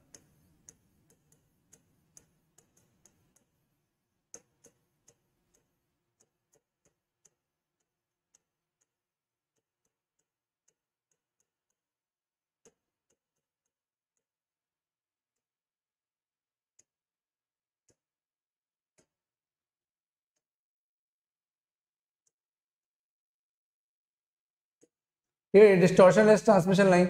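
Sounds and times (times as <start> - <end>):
stylus tapping glass screen: 0.0 - 14.4, 18.8 - 19.3.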